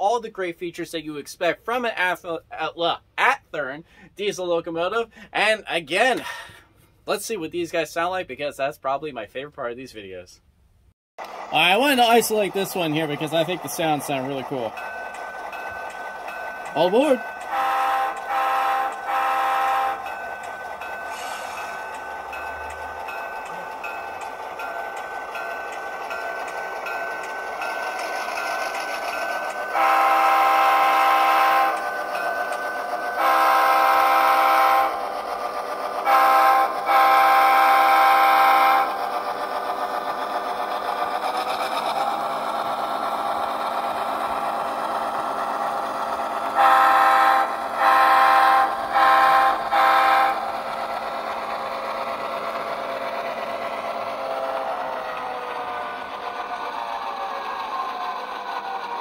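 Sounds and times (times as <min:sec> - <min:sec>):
diesel engine running: 0:11.2 - 0:34.2
chime air horn blasts: 0:16.6 - 0:20.3, 0:29.7 - 0:32.3, 0:33.2 - 0:35.0.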